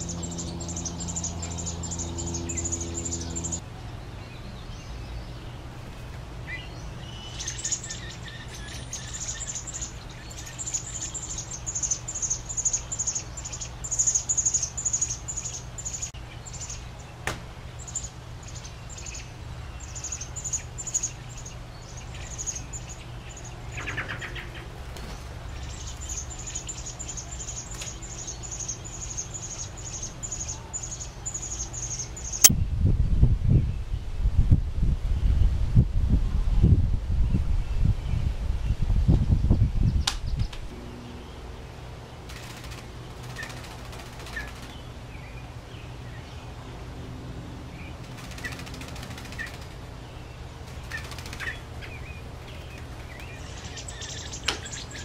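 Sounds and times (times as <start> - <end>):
nestlings chirping: 0.0 - 3.6, 6.4 - 32.5, 50.8 - 55.0
steady low hum: 0.0 - 55.0.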